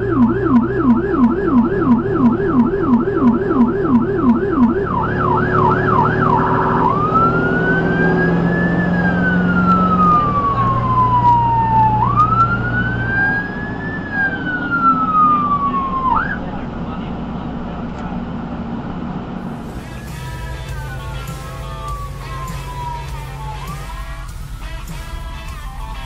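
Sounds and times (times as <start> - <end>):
ambulance siren: 0.0 - 16.6, 19.4 - 26.0.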